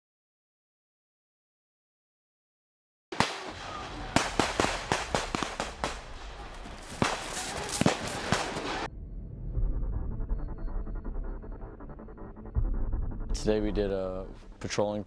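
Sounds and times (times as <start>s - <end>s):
campfire crackling and popping: 3.2s - 8.9s
low pulsing drone: 8.6s - 14.7s.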